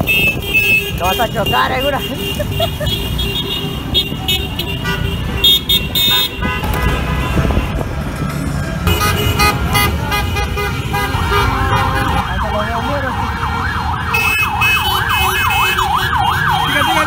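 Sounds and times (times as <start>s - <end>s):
car horns honking: 0.0s - 7.9s, 8.8s - 12.4s, 13.0s - 17.0s
traffic noise: 0.0s - 17.0s
emergency siren sweeping: 11.2s - 17.0s.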